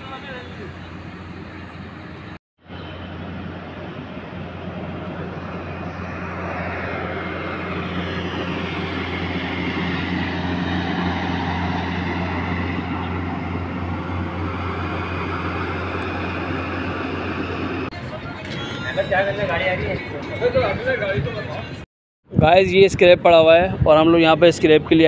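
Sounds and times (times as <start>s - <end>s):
ride-on mower engine running: 2.8s - 17.9s.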